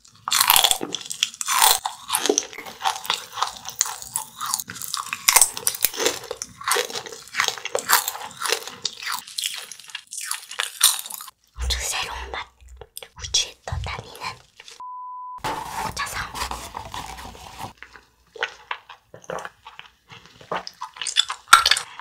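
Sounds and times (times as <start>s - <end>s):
crunching wafer candy: 0.0s - 11.5s, 16.8s - 22.0s.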